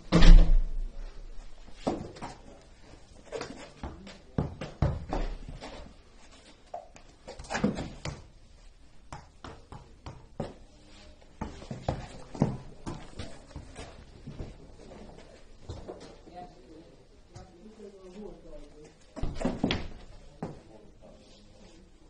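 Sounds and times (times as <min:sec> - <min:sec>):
football thudding on rubber floor: 0:01.8 - 0:02.4, 0:03.4 - 0:05.6, 0:06.7 - 0:08.3, 0:09.1 - 0:10.6, 0:11.4 - 0:14.6, 0:19.2 - 0:20.6.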